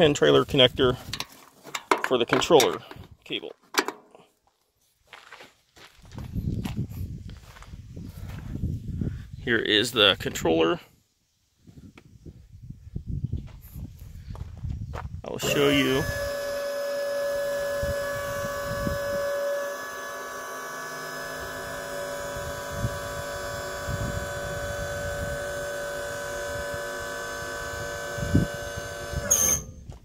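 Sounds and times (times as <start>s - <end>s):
hydraulic pump whining: 15.4s - 30.0s.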